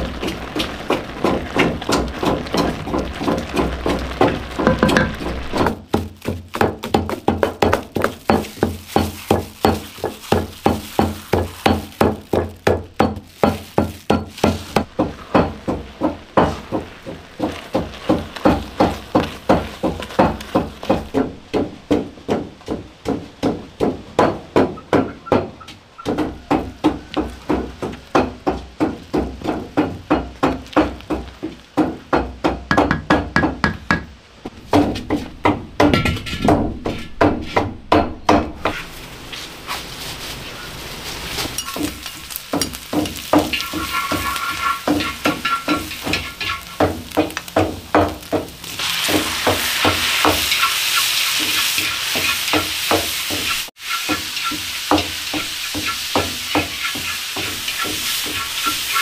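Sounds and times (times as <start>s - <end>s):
wooden paddle knocking on pot: 0.6s - 34.1s, 41.6s - 50.5s.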